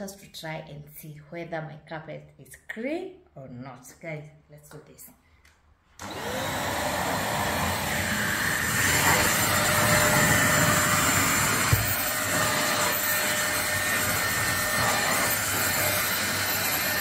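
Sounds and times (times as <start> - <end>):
vacuum cleaner running: 6.0 - 17.0.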